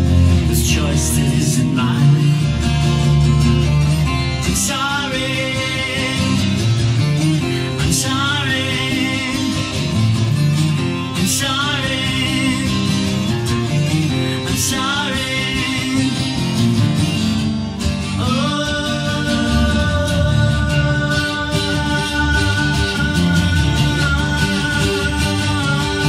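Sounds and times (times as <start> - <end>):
acoustic guitar strumming: 0.0 - 26.0
person singing wavering notes: 18.0 - 26.0.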